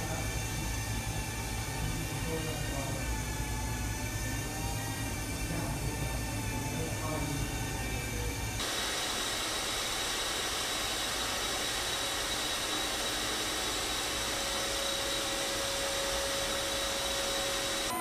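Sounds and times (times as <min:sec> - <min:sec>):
drone propellers whirring: 0:08.6 - 0:18.0.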